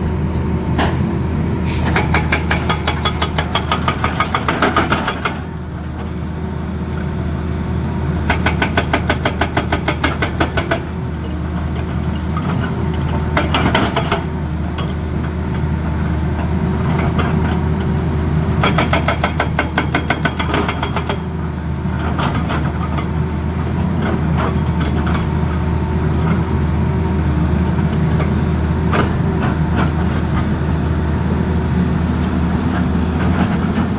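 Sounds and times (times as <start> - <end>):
excavator diesel engine running: 0.0 - 33.9
hydraulic breaker hammering rock: 1.8 - 5.5, 8.3 - 10.9, 13.1 - 15.0, 18.5 - 21.3.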